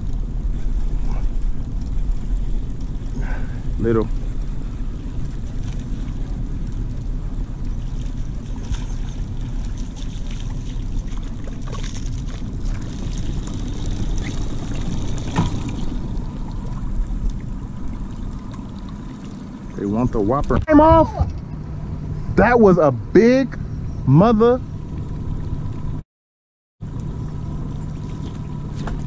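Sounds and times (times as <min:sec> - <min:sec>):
fish splashing in water: 0:00.0 - 0:19.8, 0:26.8 - 0:29.0
low boat rumble: 0:00.0 - 0:26.0, 0:26.8 - 0:29.0.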